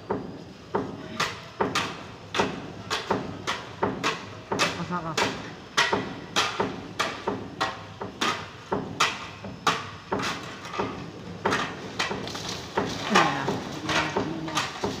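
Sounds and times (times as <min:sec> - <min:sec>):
person humming or calling: 0:13.1 - 0:14.7.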